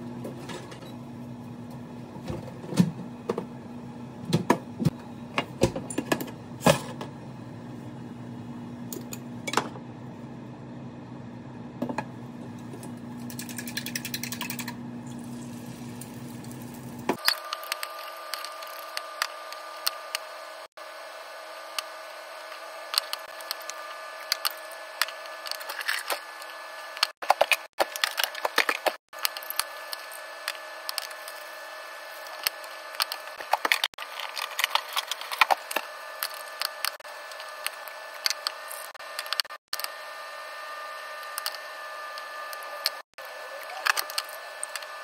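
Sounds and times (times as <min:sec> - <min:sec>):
egg sizzling in a pan: 0:15.0 - 0:18.9.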